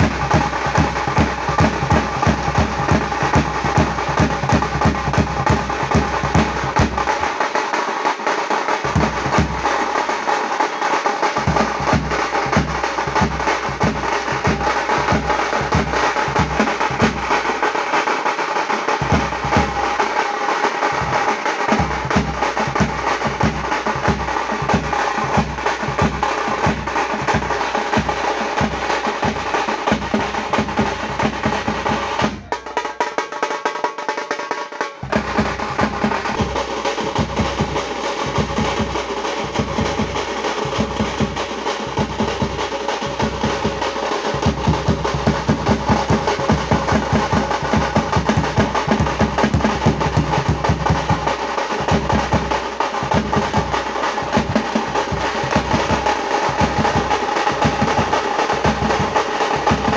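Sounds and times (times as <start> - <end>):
bass drum: 0.0 - 7.4, 8.8 - 9.8, 35.0 - 59.9
side drums playing fast rhythms: 0.0 - 59.9.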